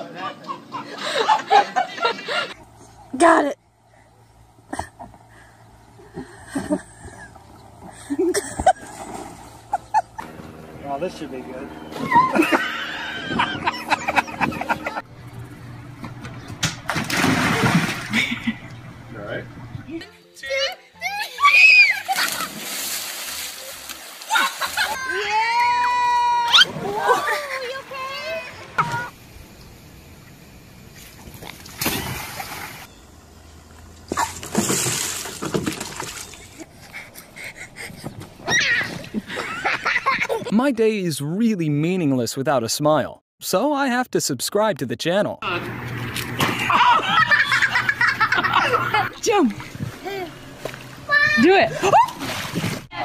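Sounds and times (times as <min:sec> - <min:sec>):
water splashing: 0:16.8 - 0:19.8, 0:21.6 - 0:29.2, 0:30.9 - 0:32.9, 0:34.1 - 0:40.5, 0:45.9 - 0:53.0
children's voices: 0:27.0 - 0:29.1
bucket of water pouring: 0:34.2 - 0:36.4.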